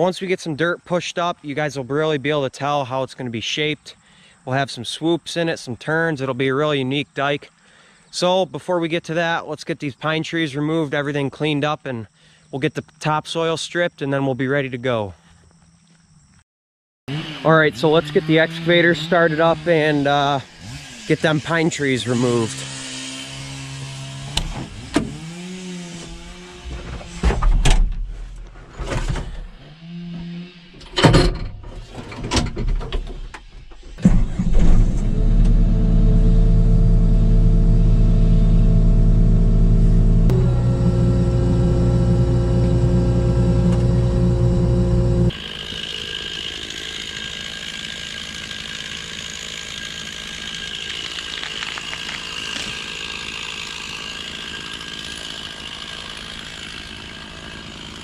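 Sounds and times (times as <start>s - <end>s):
chainsaw running: 17.1s - 27.2s, 29.6s - 30.8s, 35.0s - 58.0s
excavator diesel engine running: 35.0s - 58.0s.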